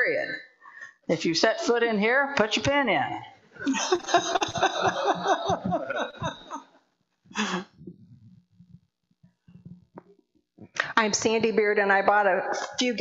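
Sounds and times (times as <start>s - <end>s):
congregation laughing: 3.6s - 6.8s.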